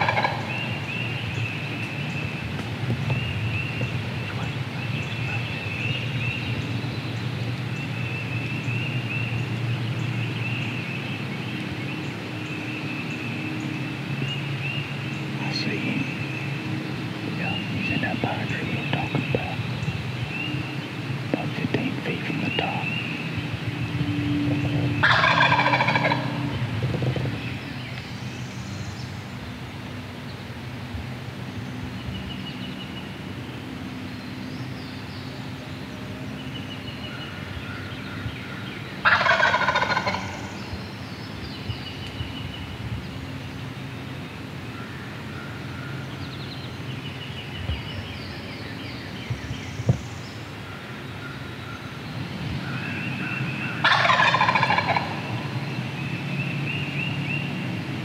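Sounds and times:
turkey gobbling: 0:00.0 - 0:00.7, 0:25.0 - 0:26.6, 0:39.0 - 0:40.5, 0:53.8 - 0:55.2
songbird chirps: 0:00.0 - 0:58.0.

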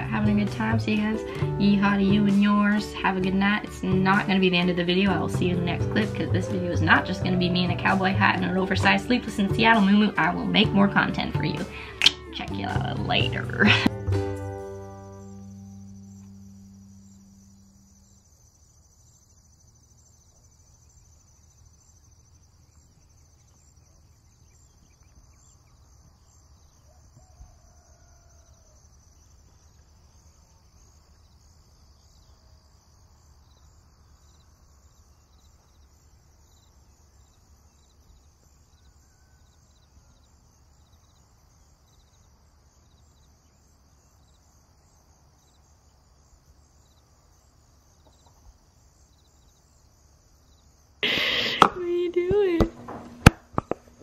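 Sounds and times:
high-pitched pulsing hiss: 0:14.7 - 0:19.7, 0:50.5 - 0:54.0
low hum: 0:15.0 - 0:18.3.

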